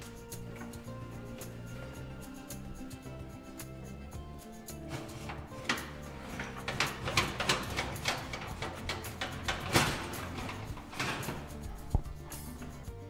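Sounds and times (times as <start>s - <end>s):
quiet background music: 0.0s - 13.0s
oven door and pan clicks: 4.9s - 12.2s.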